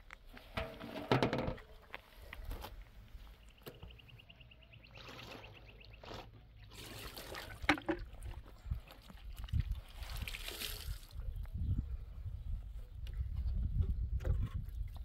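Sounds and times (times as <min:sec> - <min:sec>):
water splashing into metal basin: 0:06.8 - 0:08.4.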